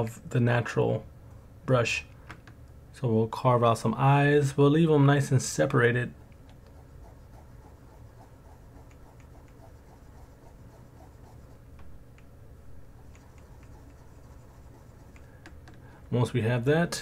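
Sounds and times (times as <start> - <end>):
low steady hum: 0.0 - 17.0
computer mouse clicks: 13.0 - 14.0, 15.1 - 15.8.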